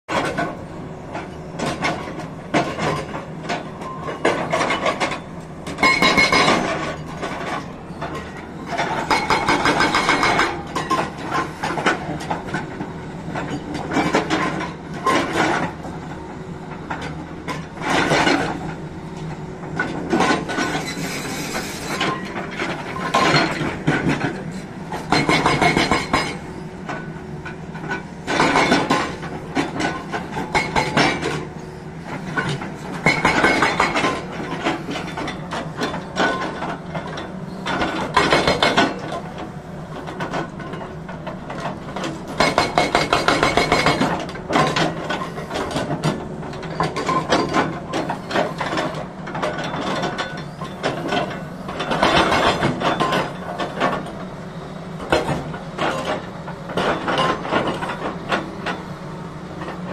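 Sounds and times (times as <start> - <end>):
excavator engine running: 0.1 - 59.9
hydraulic breaker hammering rock: 4.2 - 7.4, 8.7 - 12.6, 19.8 - 26.4, 27.9 - 31.5, 32.2 - 39.2, 41.6 - 54.2.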